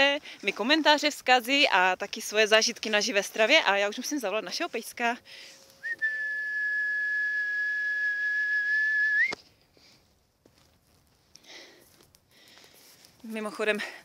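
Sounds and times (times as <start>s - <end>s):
long steady whistle: 5.4s - 9.4s.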